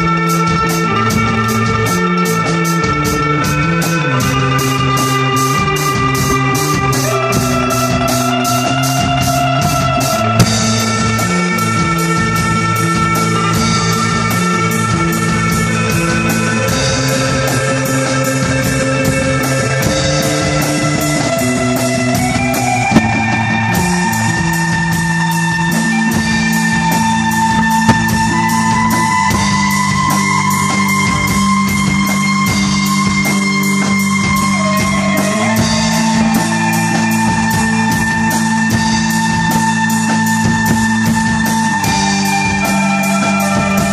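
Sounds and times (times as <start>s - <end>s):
electric bass line: 0.0s - 42.2s
electric guitar melody: 0.0s - 43.9s
drum kit beat: 10.2s - 11.5s, 22.9s - 23.8s, 27.7s - 29.1s.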